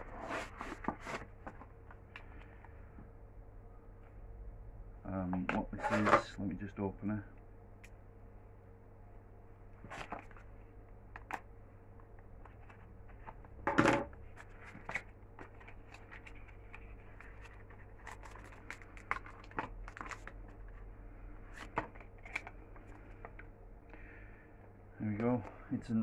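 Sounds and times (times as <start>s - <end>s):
packaging rustling: 14.3s - 20.7s.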